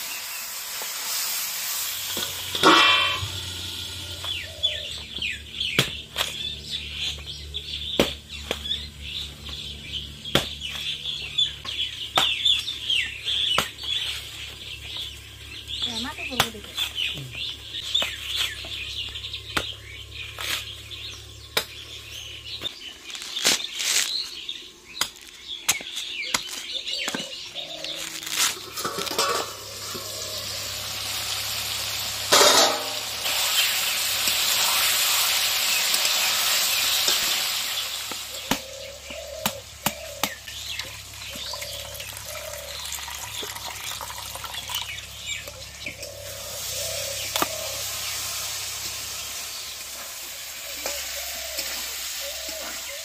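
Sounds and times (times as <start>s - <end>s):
food sizzling in a pan: 0.0s - 4.9s, 28.6s - 38.6s, 40.9s - 53.0s
machete chopping coconut husk: 5.7s - 6.5s, 7.9s - 8.8s, 10.2s - 10.9s, 21.5s - 21.9s
water trickling into a steel cup: 40.8s - 45.5s.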